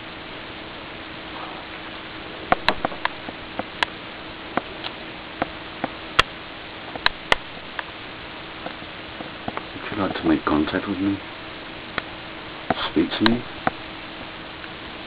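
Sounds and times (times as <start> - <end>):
faint hum: 0.0 - 15.0
steady hiss: 0.0 - 15.0
sharp clicks and ticks: 2.5 - 4.0, 6.9 - 7.9, 8.6 - 10.3.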